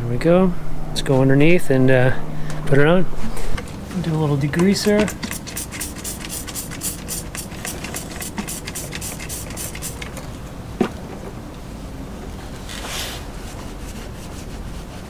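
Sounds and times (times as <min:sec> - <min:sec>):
spray bottle hissing sprays: 0:04.8 - 0:10.2.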